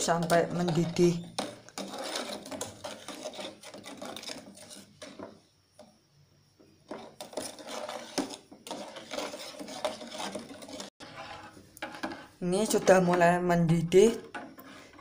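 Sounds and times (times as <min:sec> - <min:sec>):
metal spoon scraping saucepan: 0:00.0 - 0:05.4, 0:06.9 - 0:15.0.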